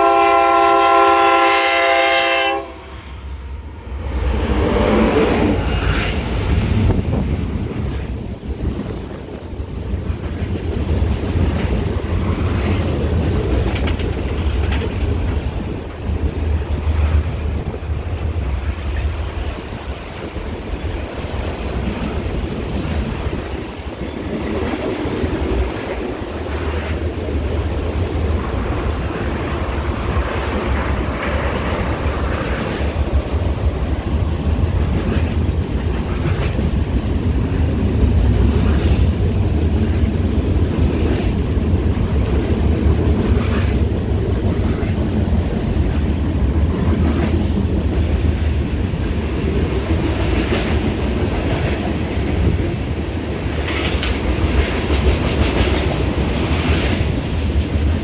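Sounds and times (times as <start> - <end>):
train wheels rumbling on rails: 0.0 - 58.0
wheels clicking over rail joints: 9.6 - 17.7.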